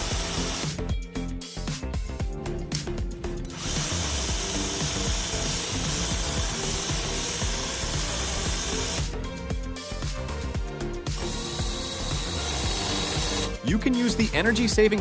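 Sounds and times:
pressure washer spraying water: 0:11.3 - 0:13.5.

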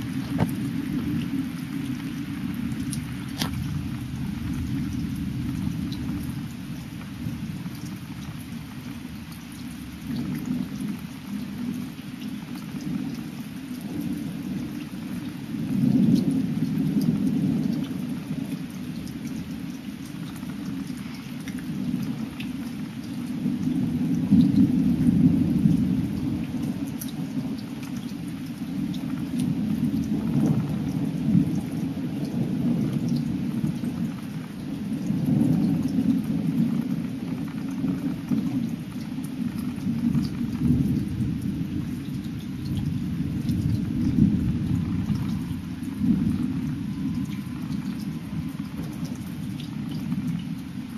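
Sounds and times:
thunder rumbling: 0:00.0 - 0:09.2, 0:28.8 - 0:50.9
steady rain: 0:00.0 - 0:50.9.

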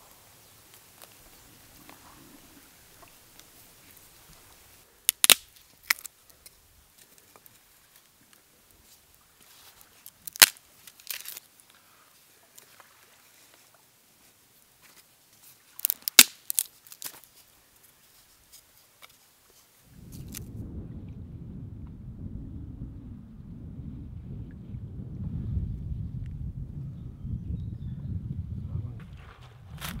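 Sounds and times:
wooden sticks clicking together: 0:05.1 - 0:06.6, 0:10.1 - 0:11.4, 0:15.8 - 0:17.3.

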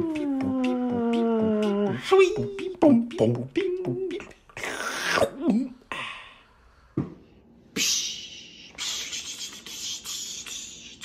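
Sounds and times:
man beatboxing: 0:00.0 - 0:05.4, 0:07.8 - 0:11.0.

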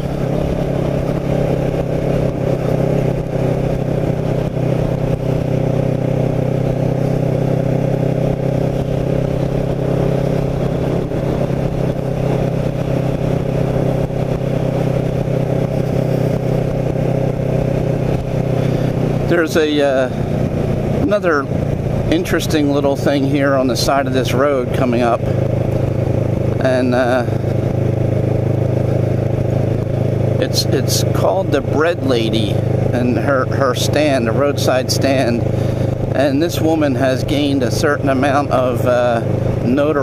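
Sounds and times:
wind rumble on microphone: 0:00.0 - 0:30.4
motorcycle engine cruising: 0:00.0 - 0:40.0.

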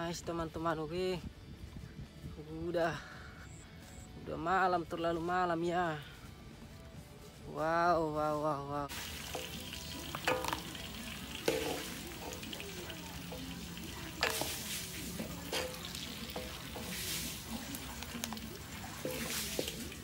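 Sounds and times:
eel frying in hot oil: 0:08.9 - 0:20.0
metal spatula knocking on pan: 0:09.3 - 0:17.6.

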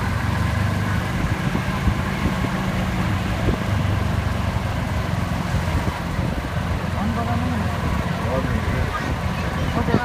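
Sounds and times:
golf cart driving on road: 0:00.0 - 0:10.0.

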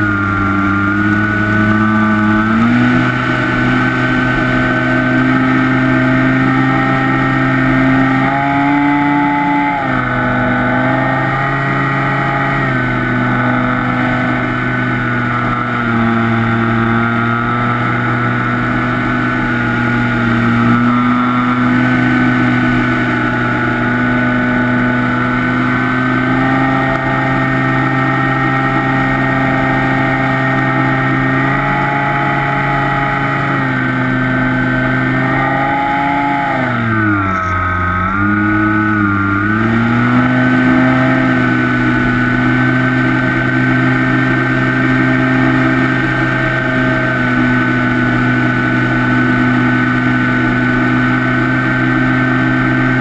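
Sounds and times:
model plane motor buzzing whine: 0:00.0 - 0:53.0.

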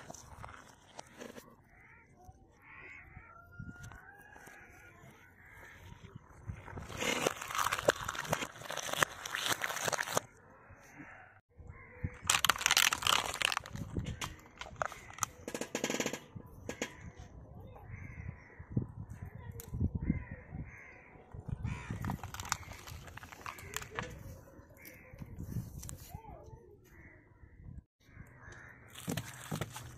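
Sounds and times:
crows cawing: 0:01.0 - 0:06.8, 0:10.5 - 0:13.4, 0:14.2 - 0:15.4, 0:20.0 - 0:24.2, 0:28.0 - 0:29.7
tyre crushing eggs and gel beads: 0:06.6 - 0:10.3, 0:12.2 - 0:16.1, 0:21.8 - 0:24.0, 0:28.9 - 0:29.9.

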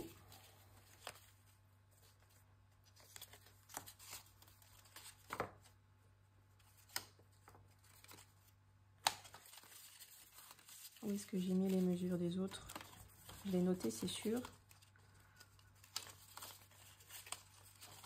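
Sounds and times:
paper strips rustling and tapping: 0:02.0 - 0:05.8, 0:09.0 - 0:18.0.

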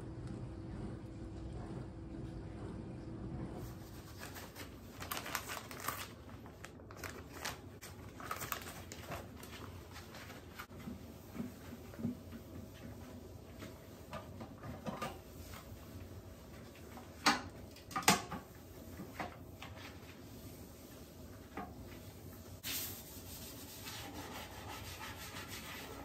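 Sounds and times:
glove rubbing porcelain: 0:19.8 - 0:26.0.

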